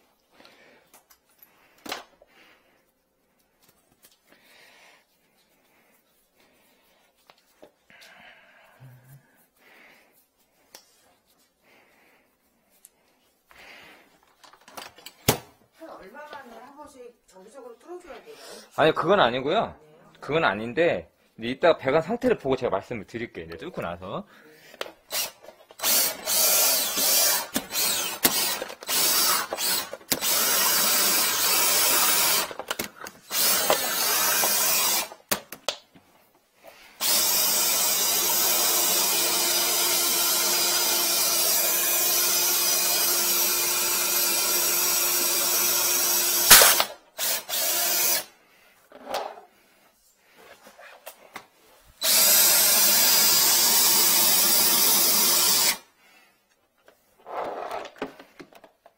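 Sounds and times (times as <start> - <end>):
drill spinning drain cable: 25.1 - 35.4, 37.0 - 48.3, 52.0 - 55.8.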